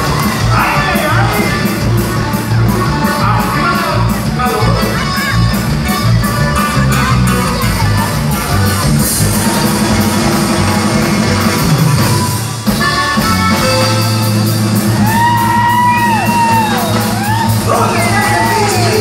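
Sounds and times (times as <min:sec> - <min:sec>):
accordion band playing: 0:00.0 - 0:19.0
long yell: 0:15.0 - 0:19.0.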